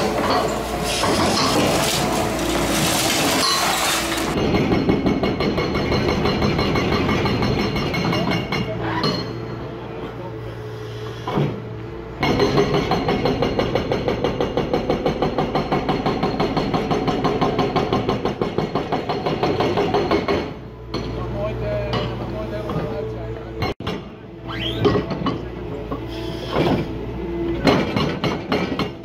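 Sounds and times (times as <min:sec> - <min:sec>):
hydraulic breaker hammering concrete: 0:00.0 - 0:08.8, 0:12.2 - 0:21.2, 0:27.6 - 0:29.0
excavator engine running: 0:00.0 - 0:29.0.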